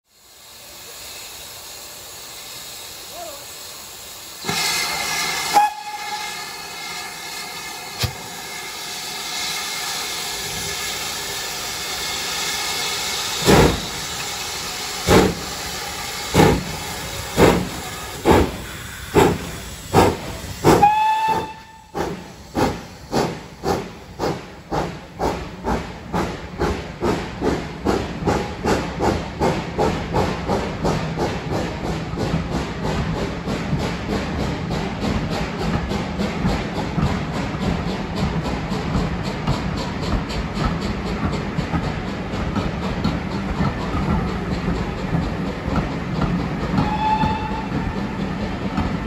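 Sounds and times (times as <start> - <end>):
steam hissing: 0.0 - 49.0
steam locomotive exhaust chuffs: 0.1 - 49.0
train whistle toot: 5.4 - 6.6, 20.7 - 22.0, 46.8 - 48.0.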